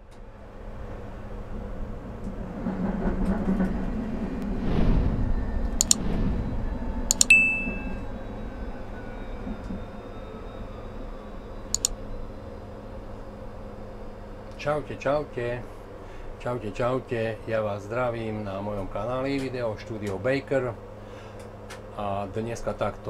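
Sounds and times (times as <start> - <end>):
electric tram hum and rumble: 0.0 - 23.0
faint whine falling in pitch: 5.1 - 15.6
sharp click: 5.8 - 6.0, 7.1 - 7.3
short bell-like chime: 7.2 - 8.1.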